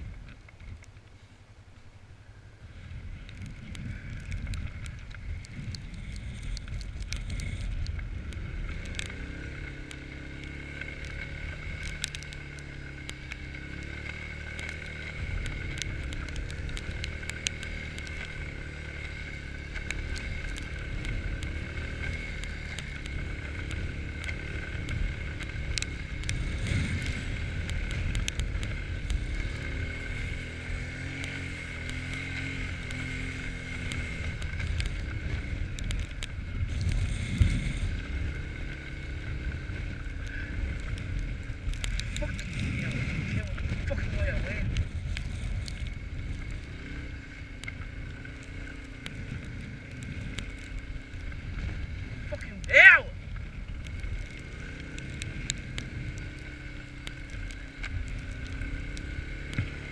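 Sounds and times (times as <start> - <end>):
quad bike engine running: 2.4 - 59.9
sharp ticks: 3.2 - 59.9.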